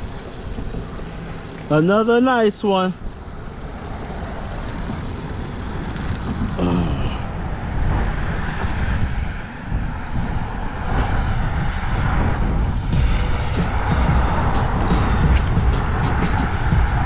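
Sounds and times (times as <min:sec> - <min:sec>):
traffic rumble: 0:00.0 - 0:17.0
wind against microphone: 0:04.0 - 0:17.0.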